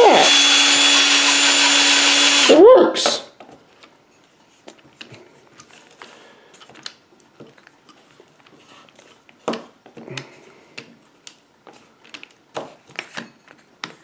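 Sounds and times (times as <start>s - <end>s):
power drill winding down: 0.0s - 2.6s.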